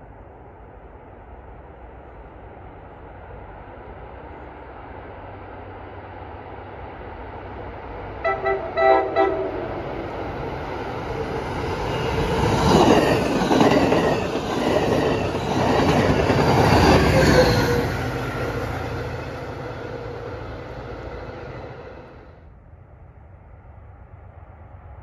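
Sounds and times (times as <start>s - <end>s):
train horn blasts: 8.2s - 9.9s
train wheels clattering on rails: 10.2s - 20.1s.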